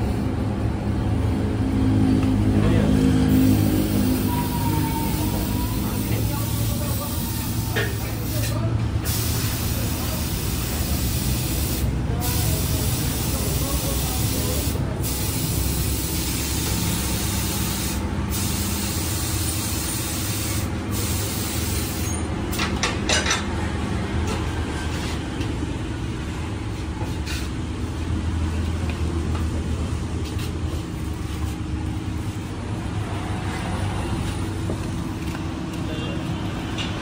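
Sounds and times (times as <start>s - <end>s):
hum of traffic and machinery: 0.0s - 37.0s
compressed air hissing: 3.3s - 22.3s.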